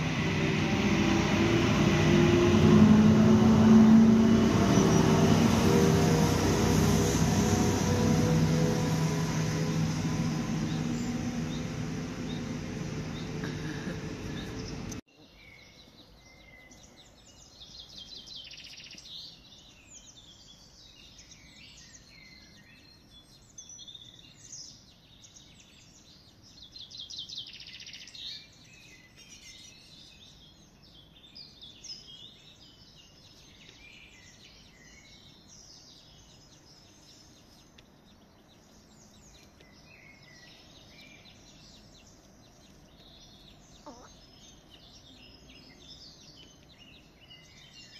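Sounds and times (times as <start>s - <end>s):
loud noise cutting off: 0.0s - 15.0s
songbirds chirping and trilling: 0.0s - 47.9s.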